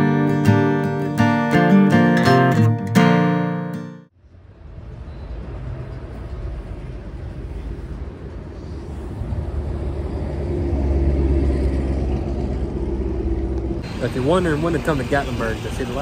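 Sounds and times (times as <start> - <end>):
traffic rumble: 4.1 - 16.0
vehicle engine hum: 4.1 - 16.0.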